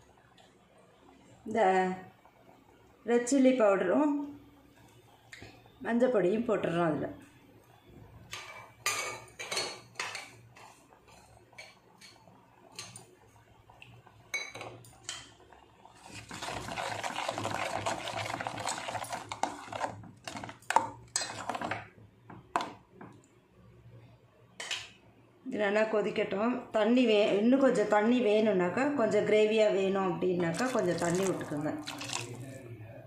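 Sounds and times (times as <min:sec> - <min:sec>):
spoon stirring and scraping: 0:16.0 - 0:21.8, 0:30.5 - 0:32.4.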